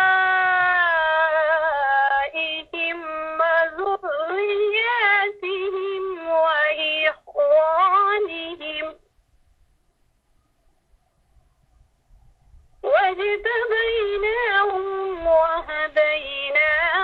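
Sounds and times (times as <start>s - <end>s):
person reciting melodically: 0.0s - 9.0s, 12.8s - 17.0s.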